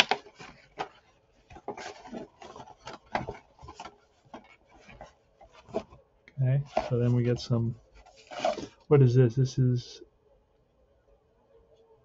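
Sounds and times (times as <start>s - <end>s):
paper cards rustling: 0.0s - 6.0s, 8.0s - 8.8s.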